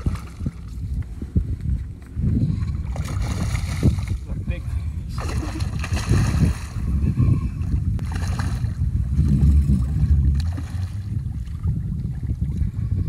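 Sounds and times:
water sloshing and splashing: 0.0 - 0.8, 2.5 - 4.3, 5.1 - 12.8
wind buffeting microphone: 0.0 - 13.0.

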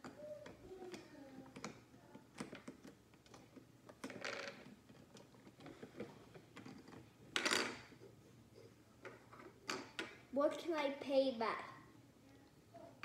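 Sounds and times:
plastic toy clicking and knocking: 0.0 - 8.0.

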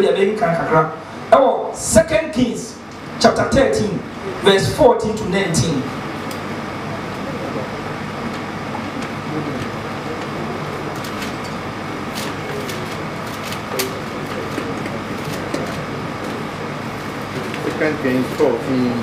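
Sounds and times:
room tone hum and hiss: 0.0 - 19.0
faint voices: 6.8 - 19.0.

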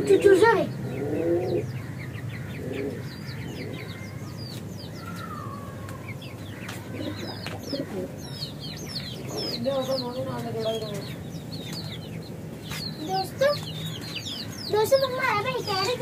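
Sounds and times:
pigeon cooing: 0.0 - 4.0, 6.9 - 8.2
small birds chirping: 0.0 - 16.0.

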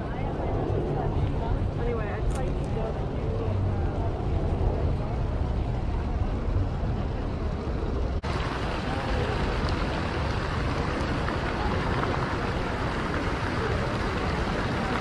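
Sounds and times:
fountain water splashing: 1.4 - 15.0.

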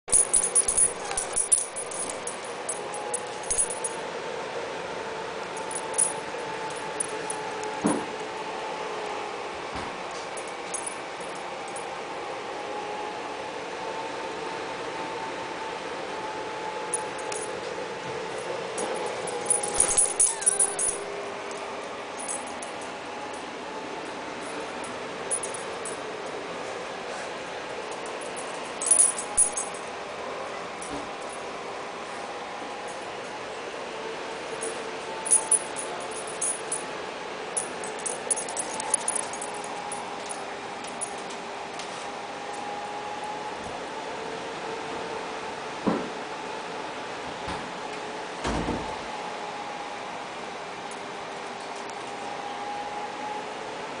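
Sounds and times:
steady low hum: 0.1 - 8.5, 16.8 - 41.3.

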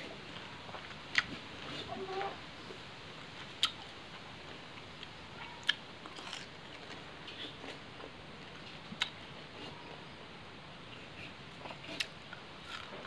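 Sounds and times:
soft chewing: 0.0 - 2.8, 3.4 - 10.2, 10.8 - 13.0
crisp biting crunches: 11.8 - 13.0.

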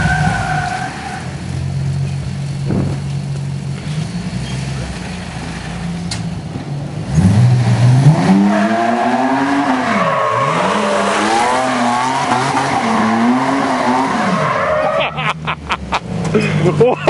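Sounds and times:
tyres squealing on pavement: 0.0 - 1.4, 8.5 - 15.3
buggy engine revving: 0.0 - 17.0.

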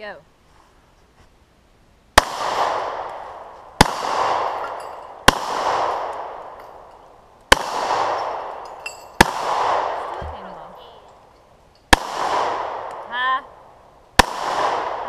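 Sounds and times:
pistol shots with echo: 2.2 - 6.9, 7.5 - 10.3, 11.9 - 13.0, 14.2 - 15.0.

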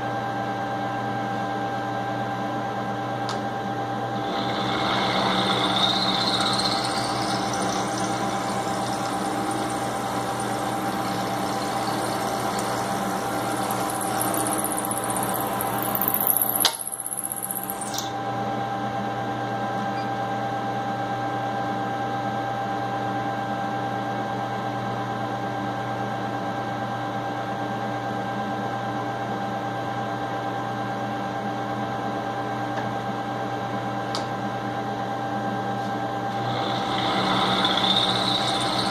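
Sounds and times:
motor hum: 4.0 - 18.1, 36.3 - 38.9
milling machine cutting metal: 4.1 - 18.1, 36.3 - 38.9
sharp click: 16.2 - 18.1.

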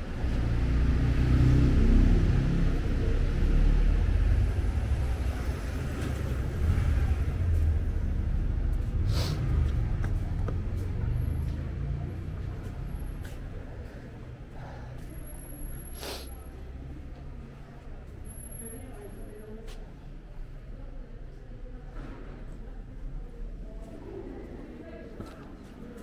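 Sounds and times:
vehicle engine passing by: 0.0 - 19.0
short hiss: 16.0 - 16.4.

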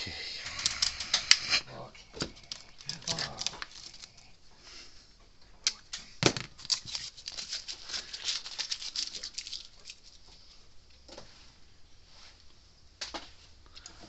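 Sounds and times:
quick light clicks and rustles: 6.6 - 10.6.

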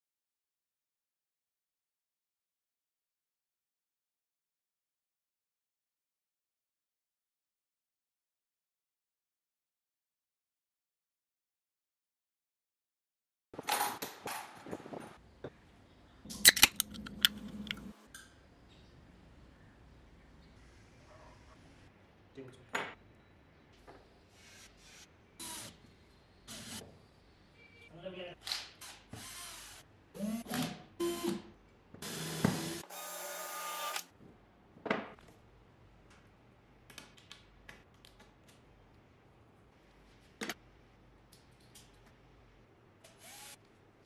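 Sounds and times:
can pull tab clicking: 16.4 - 17.8
drill drilling into wood: 25.4 - 25.7, 29.2 - 31.4, 32.0 - 34.1, 43.1 - 43.6.

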